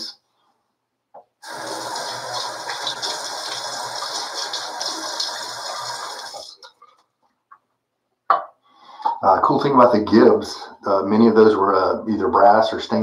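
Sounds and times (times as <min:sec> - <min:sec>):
sink tap running: 0:01.4 - 0:06.7.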